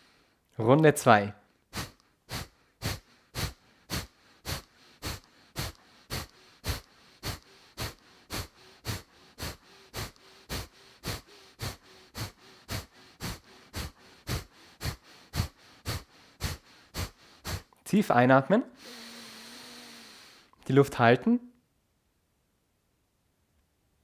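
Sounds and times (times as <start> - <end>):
man exhaling forcefully through nose: 1.7 - 17.8, 18.8 - 20.6.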